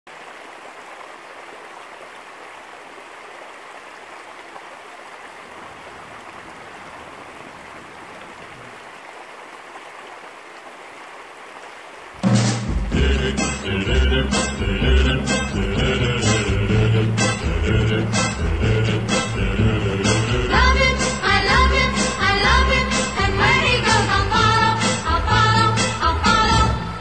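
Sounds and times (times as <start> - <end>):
stream rushing over rocks: 0.1 - 14.7
music: 12.2 - 27.0.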